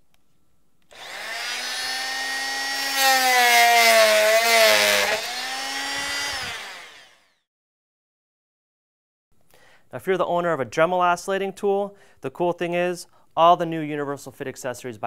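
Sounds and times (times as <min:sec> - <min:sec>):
blade cutting into wooden board: 0:00.9 - 0:07.4
oscillating multi-tool running: 0:00.9 - 0:07.4.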